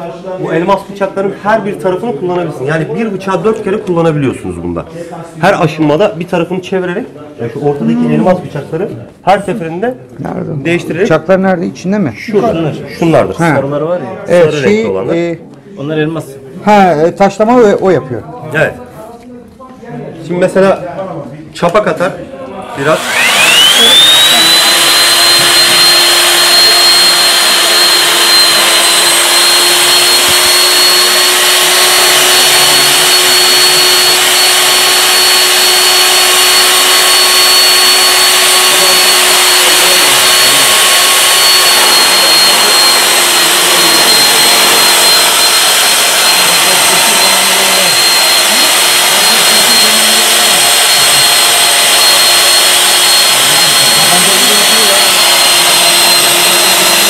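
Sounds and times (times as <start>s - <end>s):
pipe beveling machine whining: 22.8s - 57.0s.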